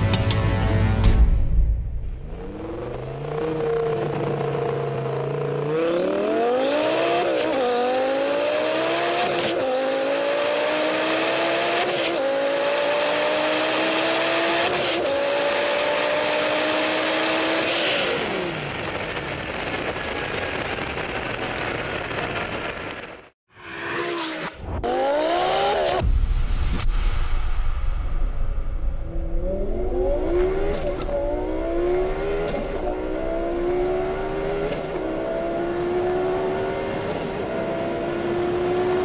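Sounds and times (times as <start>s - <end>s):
high turbo whine: 1.9s - 39.0s
sports car engine revving: 29.4s - 39.0s.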